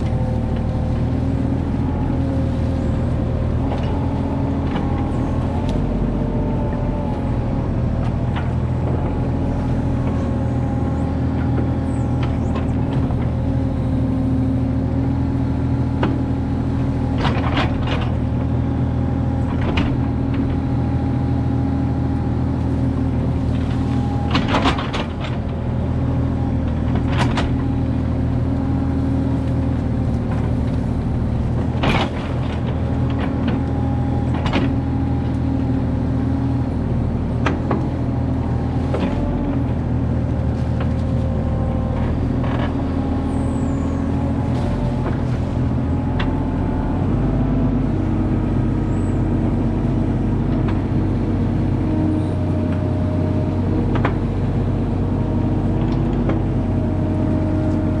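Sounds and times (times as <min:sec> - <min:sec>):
excavator bucket knocking and scraping: 0:00.0 - 0:13.9, 0:16.0 - 0:20.9, 0:23.2 - 0:46.6
mini excavator engine running: 0:00.0 - 0:58.0.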